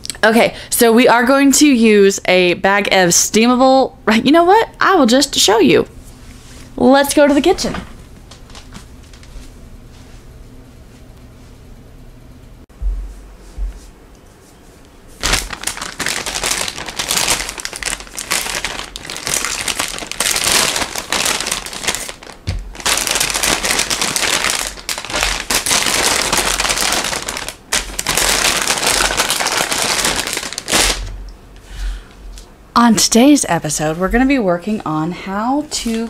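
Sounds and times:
plastic bag crinkling: 15.2 - 31.2.

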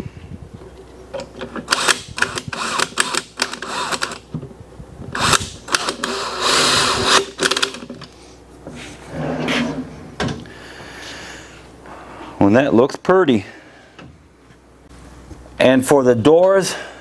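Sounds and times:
cordless drill driving screws: 1.7 - 4.2, 5.2 - 7.6
screws and metal handle clattering: 5.2 - 8.1.

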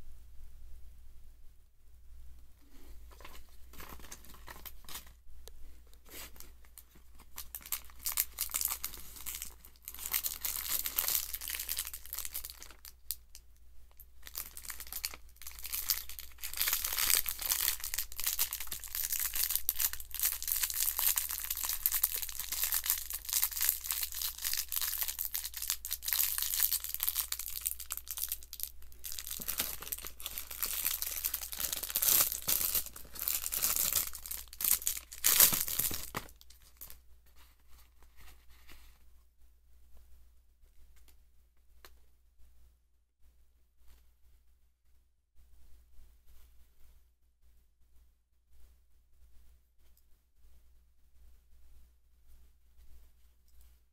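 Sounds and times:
plastic packaging crinkling: 3.1 - 5.2, 6.3 - 13.2, 14.2 - 37.0.

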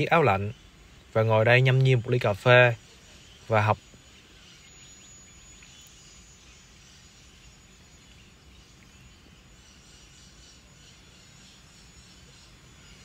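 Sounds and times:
faint outdoor ambience: 0.0 - 13.0.

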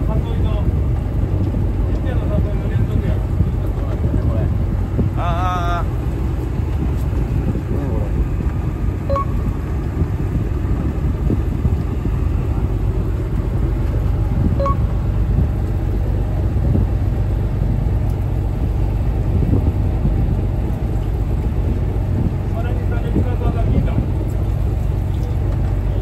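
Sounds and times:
boat low rumble: 0.0 - 26.0
short faint beep: 9.1 - 9.5, 14.6 - 14.9.

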